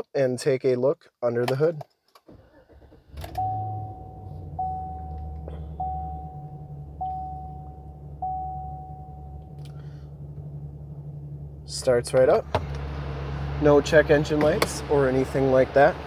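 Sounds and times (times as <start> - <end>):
truck engine starting and idling: 2.3 - 16.0
dashboard warning chime: 3.4 - 9.6.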